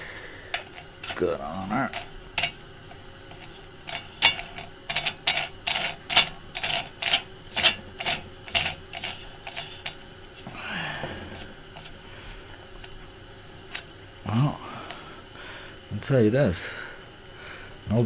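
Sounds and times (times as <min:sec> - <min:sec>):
ratchet wrench clicking: 0:01.9 - 0:10.0.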